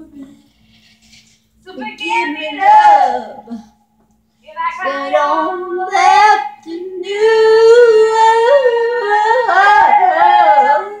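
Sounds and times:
faint steady hum: 0.0 - 11.0
woman singing unaccompanied: 1.7 - 3.8, 4.4 - 11.0.

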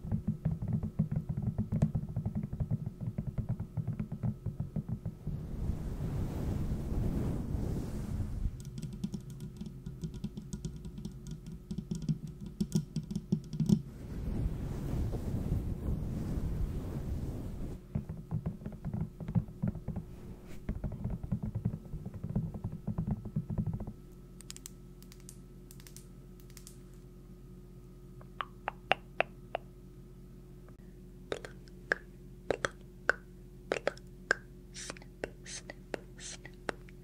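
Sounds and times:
light rapid tapping: 0.0 - 5.2, 8.6 - 13.8.

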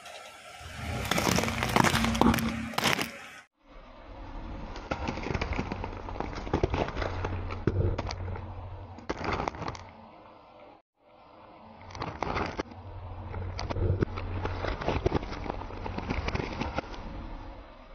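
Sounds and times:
tyre crushing beetroots: 0.7 - 3.4, 4.8 - 10.0, 11.8 - 17.2
low engine hum: 3.6 - 17.9.

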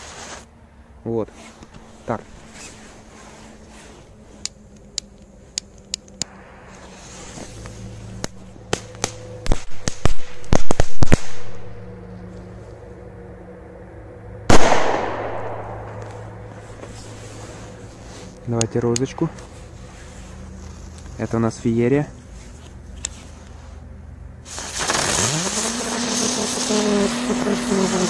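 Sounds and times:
firecrackers banging and crackling: 8.2 - 11.6, 24.5 - 28.0.

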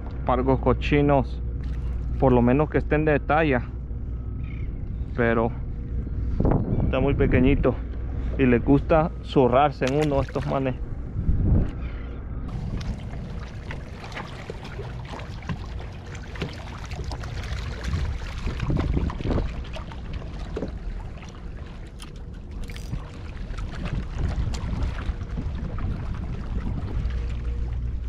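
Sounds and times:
water lapping and splashing: 1.6 - 2.5, 7.4 - 11.9, 12.5 - 28.0
wind rumbling on microphone: 1.6 - 28.0.

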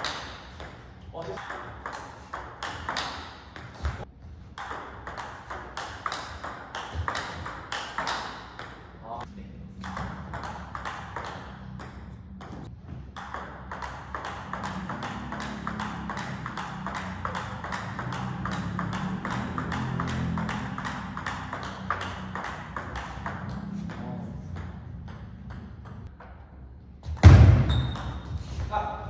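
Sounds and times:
table tennis ball clicking: 4.6 - 8.8, 9.8 - 24.0.

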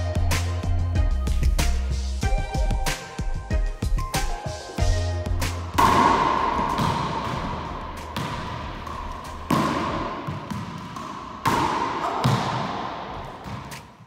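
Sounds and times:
racquetball hits echoing: 5.4 - 14.0.

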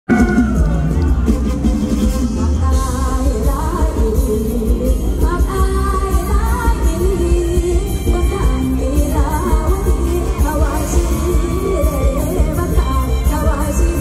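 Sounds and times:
amplified band: 0.1 - 14.0
woman singing into a microphone: 2.3 - 14.0.

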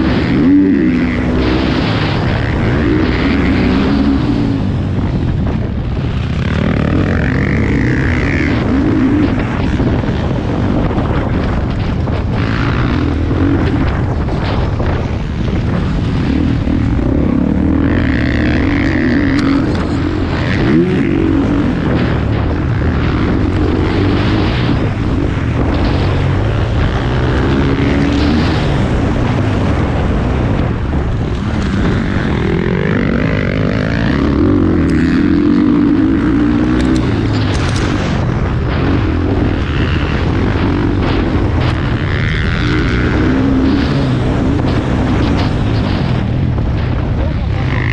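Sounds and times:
constant low rumble: 0.0 - 47.9
motocross bike engine revving: 0.0 - 47.9.

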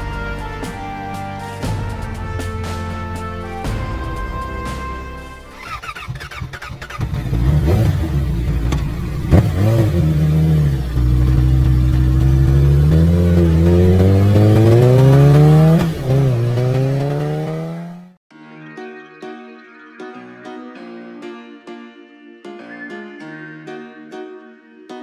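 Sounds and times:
motorcycle engine revving: 5.5 - 18.2.

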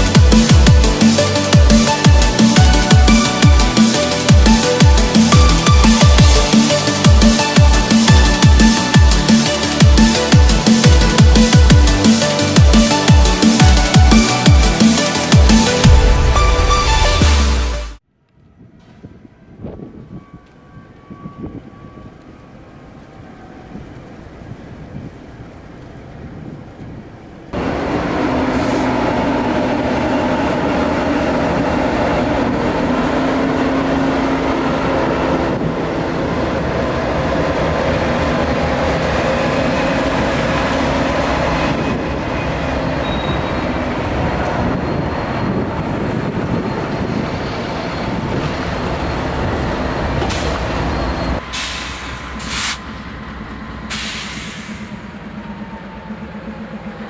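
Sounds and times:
diesel locomotive engines: 0.0 - 57.0
train wheels rolling on rails: 18.5 - 57.0.

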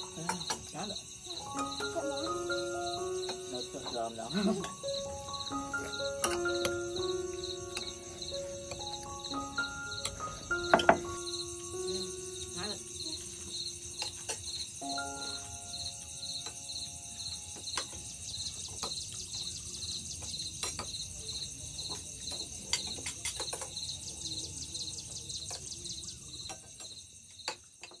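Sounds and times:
cutlery clinking on dishes: 0.0 - 1.0, 10.0 - 11.2, 14.0 - 15.1, 20.2 - 23.9, 26.4 - 28.0
high insect hiss: 0.0 - 28.0
insects chirping: 0.0 - 28.0.

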